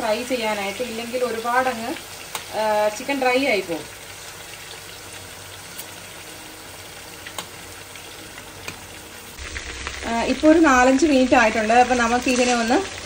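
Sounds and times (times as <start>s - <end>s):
chicken sizzling in frying pan: 0.0s - 13.0s.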